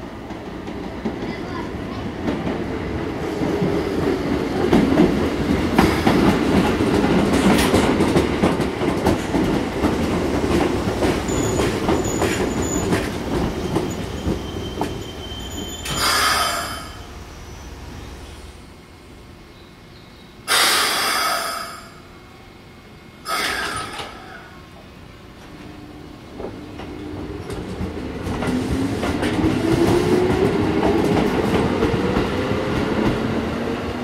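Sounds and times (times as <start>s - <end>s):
wheels clacking over rail joints: 4.7s - 16.3s
electric train braking: 11.2s - 18.6s, 20.4s - 22.1s, 23.2s - 24.6s
air hiss: 15.9s - 17.0s, 20.5s - 22.0s, 23.3s - 24.0s.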